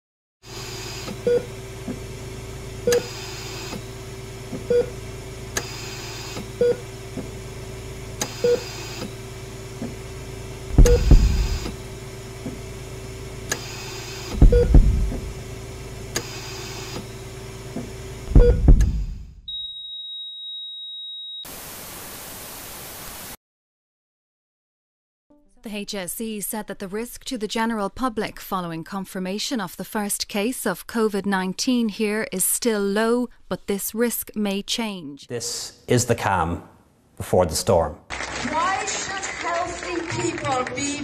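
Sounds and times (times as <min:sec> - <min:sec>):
steady low hum: 0:00.5 - 0:19.5
short electronic beeps: 0:08.4 - 0:08.8, 0:10.8 - 0:11.7, 0:14.4 - 0:14.9, 0:18.4 - 0:18.7
deep booming hits: 0:10.7 - 0:11.8, 0:14.4 - 0:15.4, 0:18.3 - 0:19.5.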